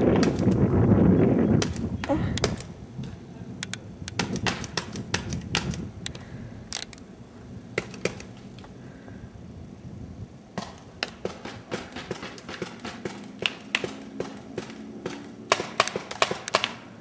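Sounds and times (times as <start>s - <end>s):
paintball markers firing: 0.0s - 0.6s, 1.6s - 2.7s, 3.6s - 7.0s, 7.8s - 8.4s, 10.6s - 16.9s.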